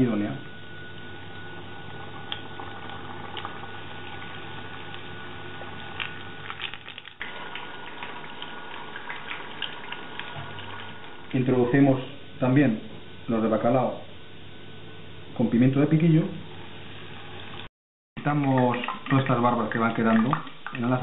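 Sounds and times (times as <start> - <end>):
battered food frying in oil: 0.9 - 11.6
oil crackling and popping: 2.2 - 11.2.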